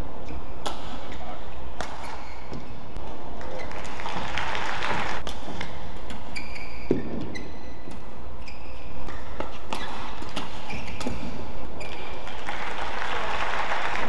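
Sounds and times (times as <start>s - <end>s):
shoes squeaking on court: 0.2s - 3.9s, 5.6s - 12.3s
racket hitting shuttlecock: 0.6s - 1.1s, 1.8s - 2.7s, 5.2s - 8.1s, 9.0s - 12.0s.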